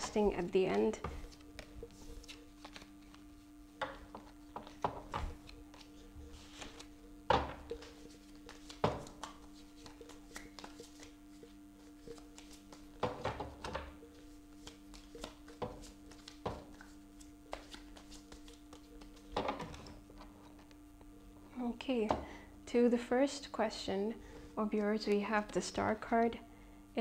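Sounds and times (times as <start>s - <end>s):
faint steady hum: 0.0s - 27.0s
cards shuffled on wooden table: 1.1s - 3.2s, 3.8s - 20.7s.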